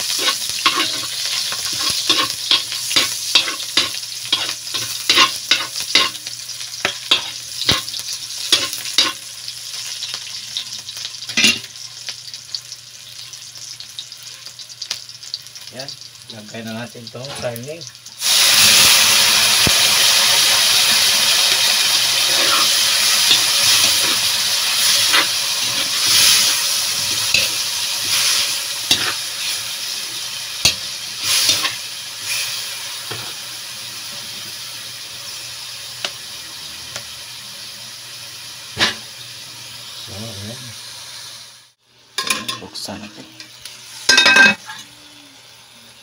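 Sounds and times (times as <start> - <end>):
spatula scraping a wok: 0.0 - 9.3, 22.2 - 33.4
meat sizzling in hot oil: 0.0 - 46.0.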